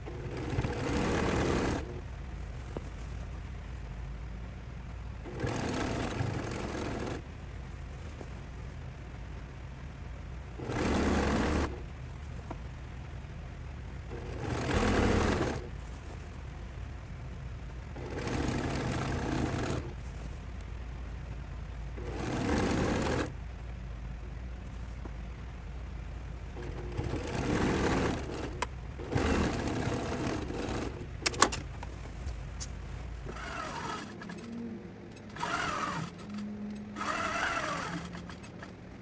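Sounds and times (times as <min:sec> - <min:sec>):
sewing machine stitching: 0:00.0 - 0:02.0, 0:05.2 - 0:07.2, 0:10.5 - 0:11.9, 0:14.0 - 0:15.7, 0:17.9 - 0:20.0, 0:22.0 - 0:23.4, 0:26.6 - 0:31.7, 0:33.2 - 0:39.0
steady low hum: 0:00.0 - 0:39.0.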